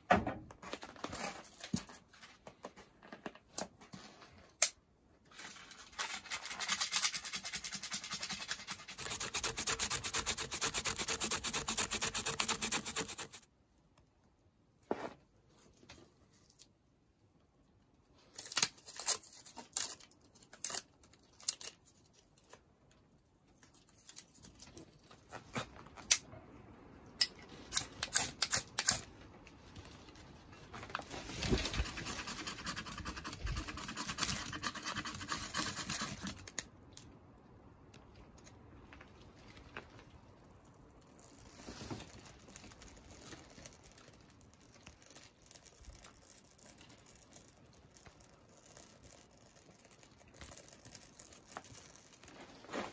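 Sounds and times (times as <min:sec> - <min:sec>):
knife scraping ferrocerium rod: 0:08.1 - 0:13.4, 0:31.7 - 0:36.6
dry tinder crackling and tearing: 0:18.3 - 0:22.6, 0:41.0 - 0:52.8.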